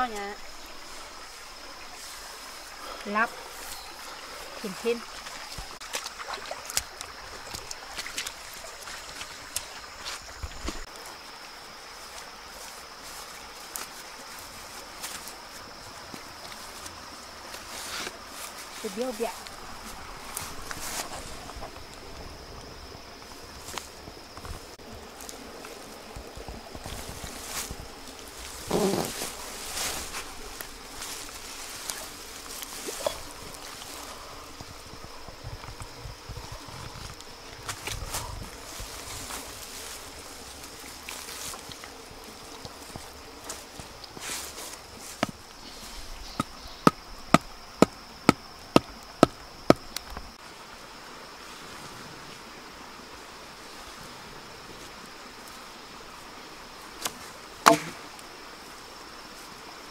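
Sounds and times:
grass rustling: 0:00.0 - 0:50.5
thud on grass: 0:57.0 - 0:58.0
wooden club pounding stake: 0:57.6 - 0:58.0.

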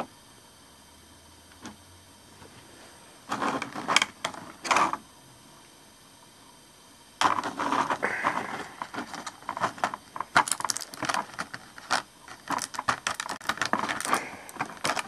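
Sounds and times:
plastic pieces clicking and rattling: 0:07.2 - 0:15.0.

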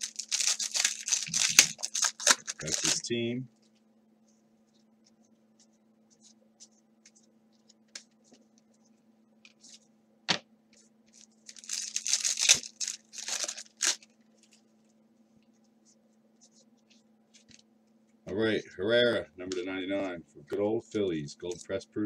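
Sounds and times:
cards being handled: 0:00.0 - 0:03.0
wrapper ripping open: 0:00.0 - 0:03.1, 0:11.2 - 0:14.1.

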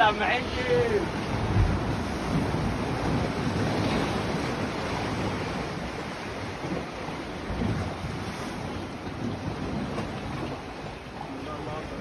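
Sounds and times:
surf breaking against rocks: 0:00.0 - 0:12.0
wind buffeting microphone: 0:00.0 - 0:12.0.

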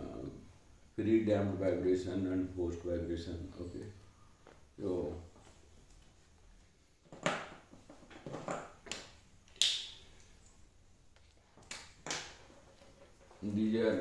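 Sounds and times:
rustling and knocking: 0:07.0 - 0:08.9, 0:11.4 - 0:13.6.

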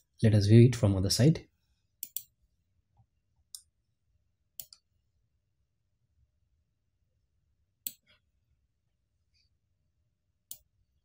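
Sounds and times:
computer mouse clicking: 0:02.0 - 0:02.3, 0:04.6 - 0:04.9, 0:07.8 - 0:08.1, 0:10.5 - 0:10.7.

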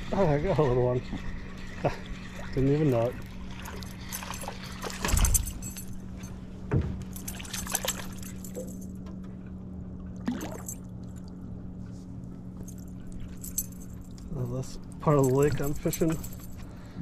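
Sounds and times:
low hum: 0:00.0 - 0:17.0
fish splashing at water surface: 0:10.2 - 0:11.3.

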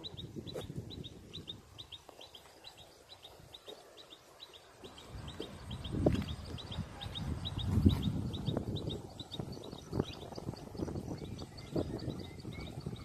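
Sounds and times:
wind rumble on microphone: 0:00.0 - 0:02.0, 0:04.9 - 0:13.0
small bird chirping: 0:00.0 - 0:13.0.

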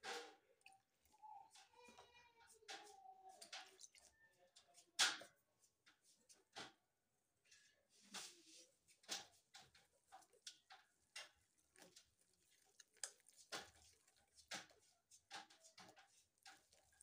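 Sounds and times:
whisk tapping against glass bowl: 0:08.9 - 0:17.0.

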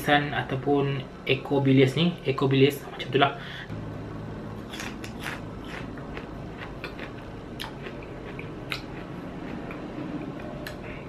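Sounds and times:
person chewing crunchy food: 0:04.6 - 0:10.8.

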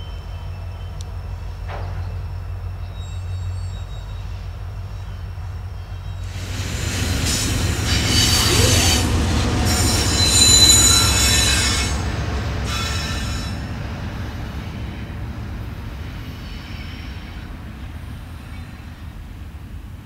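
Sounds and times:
distant freight train: 0:00.0 - 0:20.0
freight train passing close: 0:00.0 - 0:20.0
wheel squeal: 0:01.9 - 0:05.3, 0:05.9 - 0:13.8, 0:16.2 - 0:17.4.

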